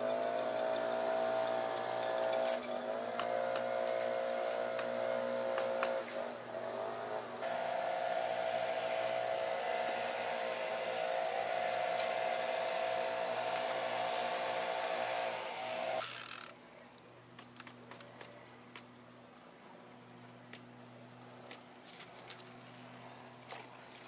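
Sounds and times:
boat motor humming: 0:00.0 - 0:16.5.

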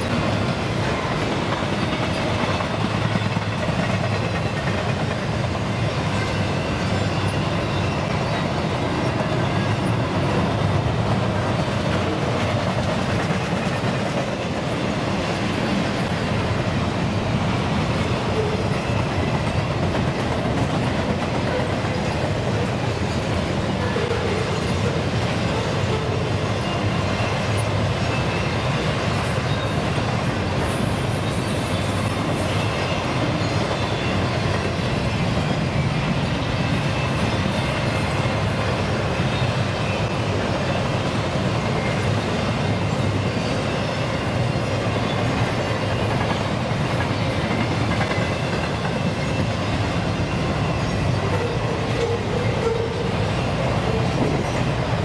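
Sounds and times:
train wheels rolling on rails: 0:00.0 - 0:55.0.

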